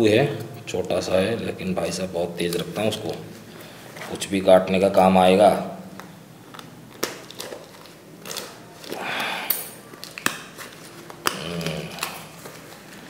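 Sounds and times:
knife tearing packaging: 0:06.9 - 0:09.2, 0:09.8 - 0:12.8.

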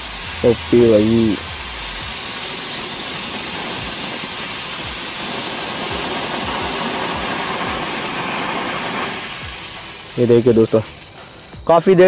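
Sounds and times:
firework hissing: 0:00.0 - 0:12.0.

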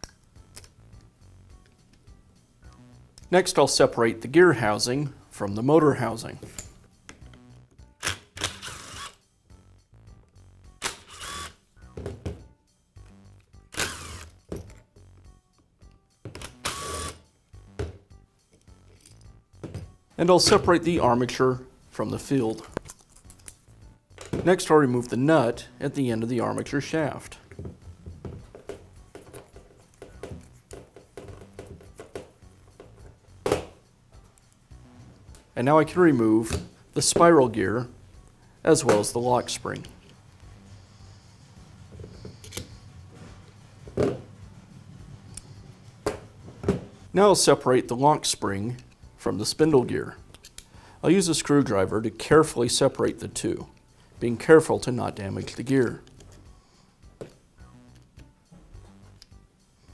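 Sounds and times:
soft background music: 0:00.0 - 0:59.9
screwdriver metal scrapes and clicks: 0:42.4 - 0:42.7.

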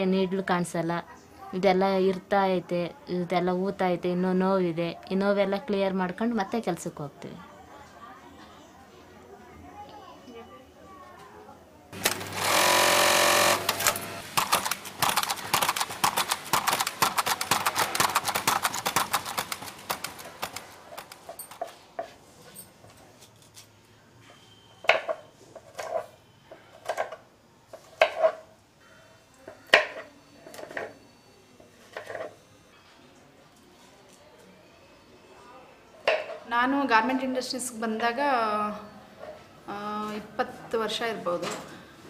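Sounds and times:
sewing machine stitching: 0:12.0 - 0:21.2.

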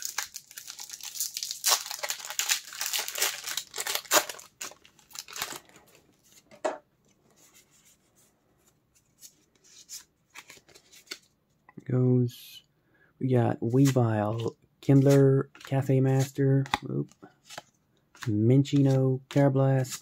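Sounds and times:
foil wrapper crinkling: 0:00.0 - 0:05.9
cards rustling: 0:00.0 - 0:08.0, 0:08.6 - 0:11.4, 0:13.6 - 0:20.0.

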